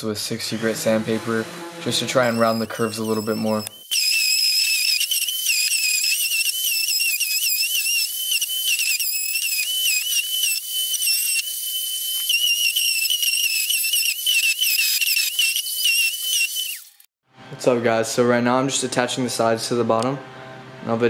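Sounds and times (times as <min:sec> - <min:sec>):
electric sander grinding wood: 0:00.3 - 0:14.5.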